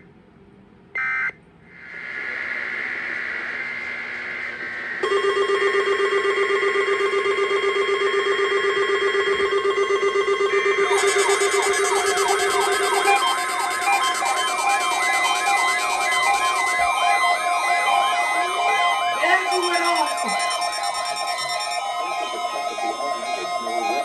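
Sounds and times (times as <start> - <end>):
rapidly pulsing electronic tones: 1.8 - 24.0
warbling siren-like alarm: 2.5 - 24.0
short high beeps: 17.9 - 24.0.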